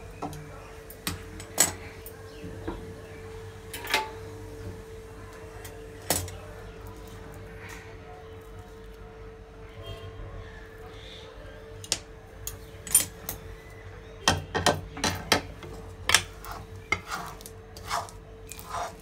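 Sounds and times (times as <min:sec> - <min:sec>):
metal spatula scraping a pan: 0:15.7 - 0:19.0.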